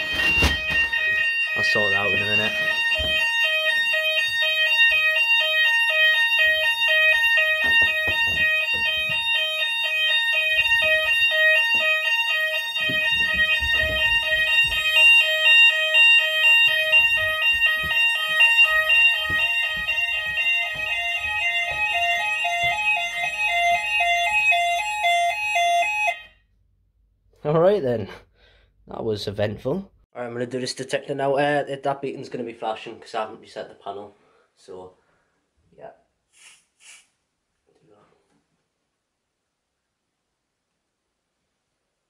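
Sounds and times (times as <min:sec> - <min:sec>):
two-tone fire alarm: 0:00.0 - 0:26.5.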